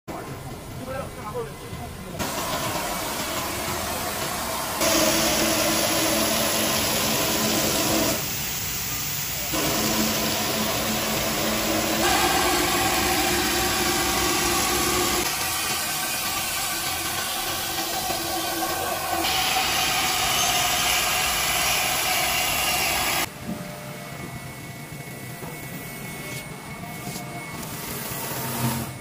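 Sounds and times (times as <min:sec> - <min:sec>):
foam cutting hiss: 0:02.2 - 0:23.3
spindle whine: 0:09.4 - 0:29.0.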